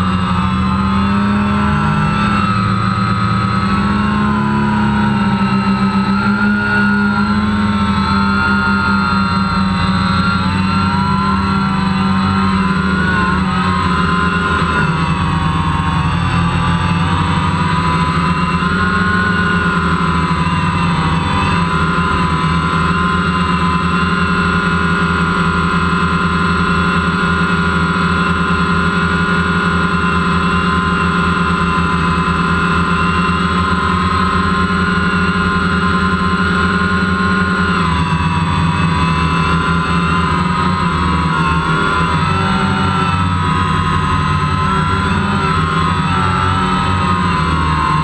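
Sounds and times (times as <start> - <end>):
drone propellers whirring: 0.0 - 48.0.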